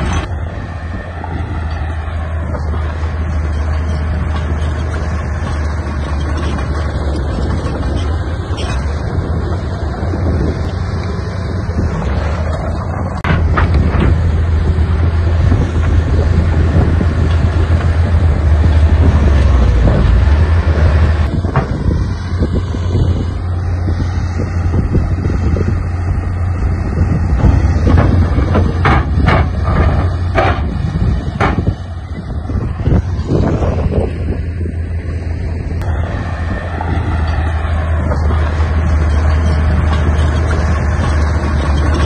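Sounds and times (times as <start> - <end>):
diesel engine of heavy machinery: 0.0 - 42.0
sharp metal knocks and clanks: 13.2 - 14.4, 27.1 - 32.0, 37.2 - 42.0.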